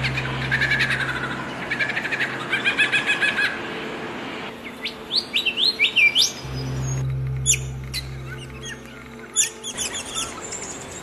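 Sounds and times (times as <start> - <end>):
lyrebird singing: 4.6 - 11.0.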